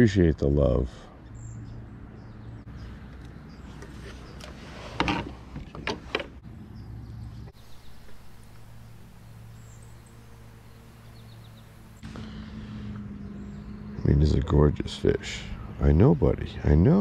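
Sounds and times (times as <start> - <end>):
sharp knocks and rubbing: 3.8 - 6.4
steady low hum: 6.3 - 17.0.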